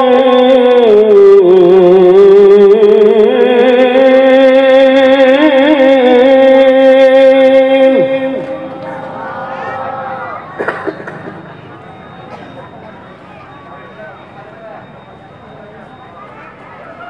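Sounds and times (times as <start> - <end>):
man reciting melodically: 0.0 - 10.6.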